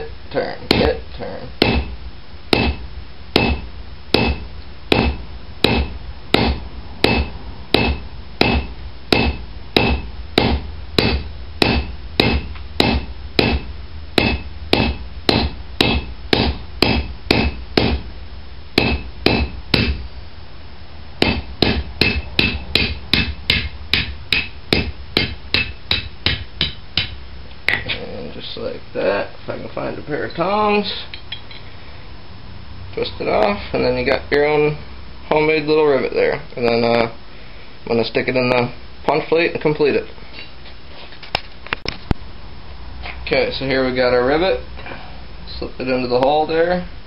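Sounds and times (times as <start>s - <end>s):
hammer striking hot steel: 1.6s - 18.0s, 18.8s - 20.0s, 21.2s - 27.8s.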